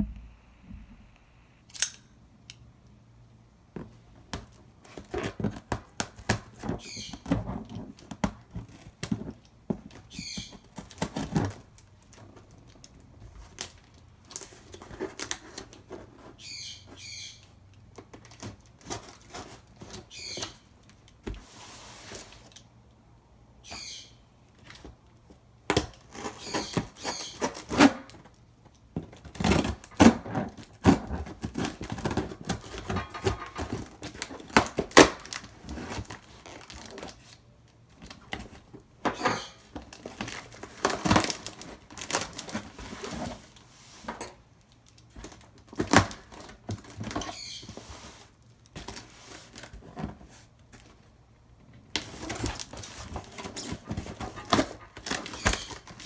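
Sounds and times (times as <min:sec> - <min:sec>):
cardboard and tape rustling: 0:03.7 - 0:22.7, 0:24.5 - 0:56.0
tape tearing: 0:25.7 - 0:28.4, 0:29.1 - 0:37.4, 0:38.1 - 0:43.7, 0:44.8 - 0:51.0, 0:52.0 - 0:56.0.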